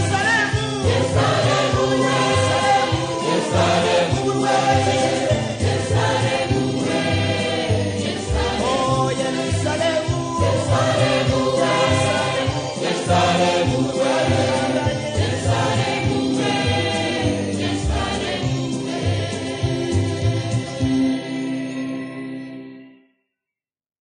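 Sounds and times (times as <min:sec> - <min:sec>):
gospel choir singing: 0:00.0 - 0:22.0
instrumental accompaniment: 0:00.0 - 0:23.0.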